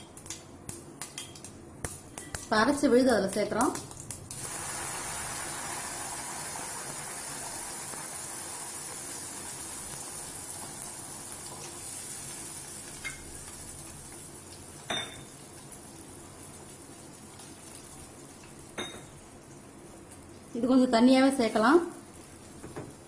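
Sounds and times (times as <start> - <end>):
paste sizzling in hot oil: 0.8 - 18.8.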